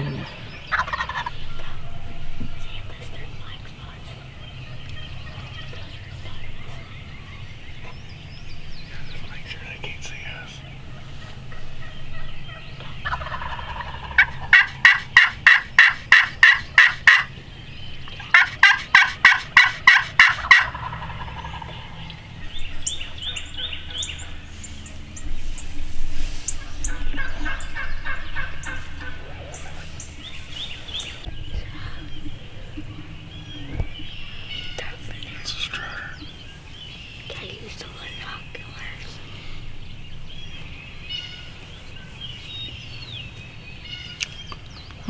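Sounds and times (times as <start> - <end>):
turkey yelping: 0.7 - 2.2, 10.8 - 17.3, 18.2 - 21.9.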